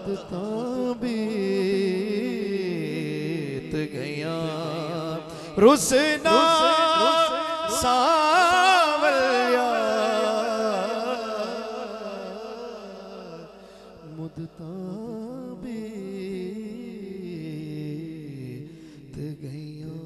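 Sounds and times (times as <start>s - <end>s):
man singing devotional song: 0.0s - 20.0s.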